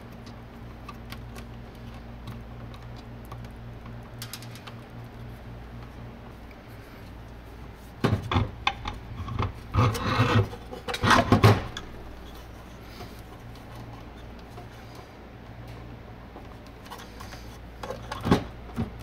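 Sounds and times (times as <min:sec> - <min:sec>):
steady low hum: 0:00.0 - 0:19.0
hard plastic scraping and knocking: 0:08.0 - 0:14.6.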